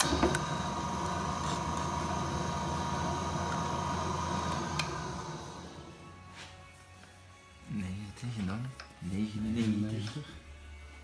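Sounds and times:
milling machine whining: 0:00.0 - 0:06.1.

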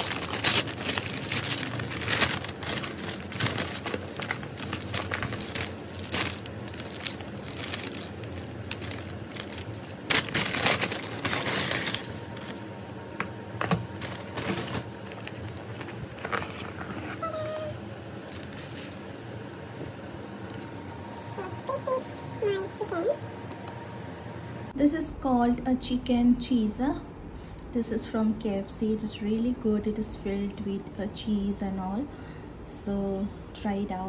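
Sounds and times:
paper bag crinkling and tearing: 0:00.0 - 0:12.7, 0:13.6 - 0:17.4, 0:18.2 - 0:19.1.

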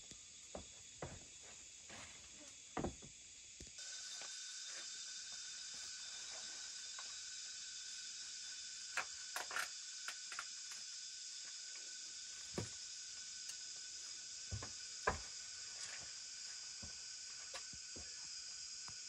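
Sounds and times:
forest insects hissing: 0:00.0 - 0:19.0.

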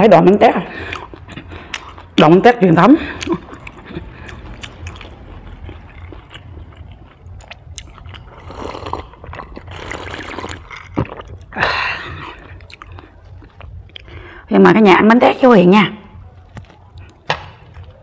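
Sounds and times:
low steady hum: 0:00.0 - 0:18.0
wet chewing clicks: 0:00.7 - 0:02.4, 0:03.0 - 0:14.3
sipping and gulping: 0:03.1 - 0:14.1.

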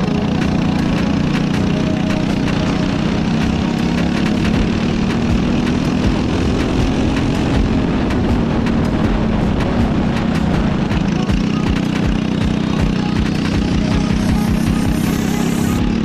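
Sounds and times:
go-kart engine running: 0:00.0 - 0:16.0.

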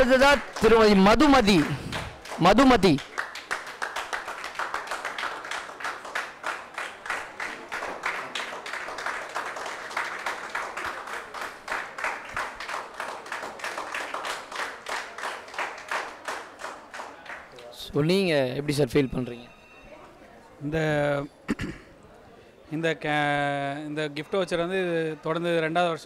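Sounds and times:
people clapping: 0:00.0 - 0:17.9.

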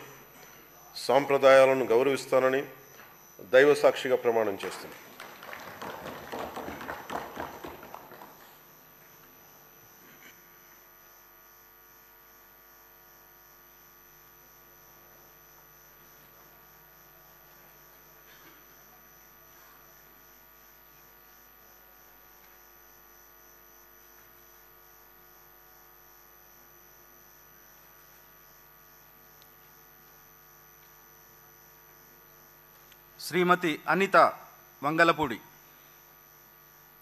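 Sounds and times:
faint electrical hum: 0:00.0 - 0:37.0.

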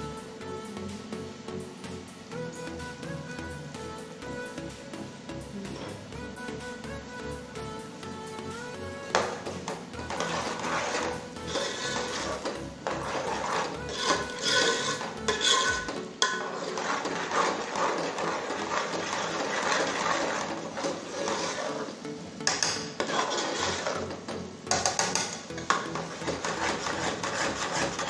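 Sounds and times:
metal spoon scraping a pot: 0:09.1 - 0:28.0
spoon clinking against pot: 0:13.9 - 0:16.5.

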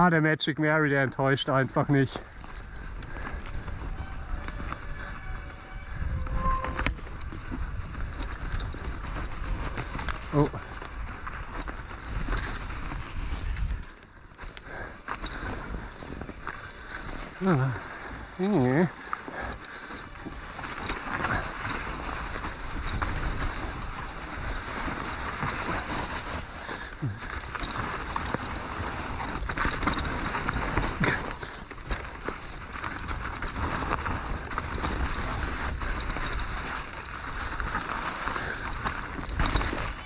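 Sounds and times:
bike rattling over bumps: 0:00.7 - 0:40.0
tyre and wind rush: 0:01.4 - 0:40.0
short squeaks: 0:03.8 - 0:07.5.

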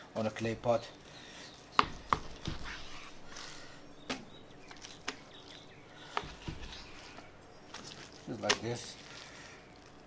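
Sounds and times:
knife cutting meat: 0:01.6 - 0:03.7.

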